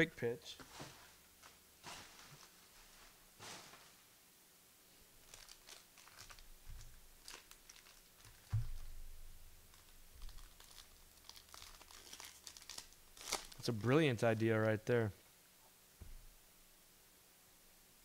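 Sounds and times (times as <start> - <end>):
wrappers and cards rustling: 0.7 - 4.0, 5.2 - 14.8
dull thump: 8.5 - 8.9.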